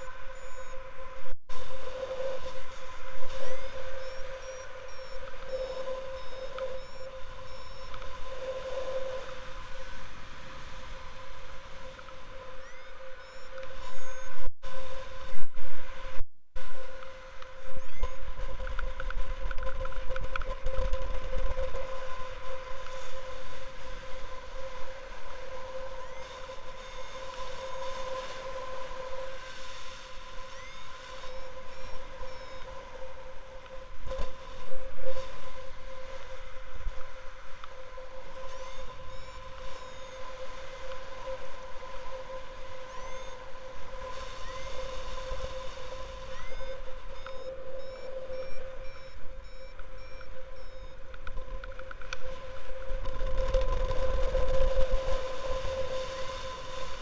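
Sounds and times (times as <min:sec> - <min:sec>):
high electronic tone: 0:46.2 - 0:51.0.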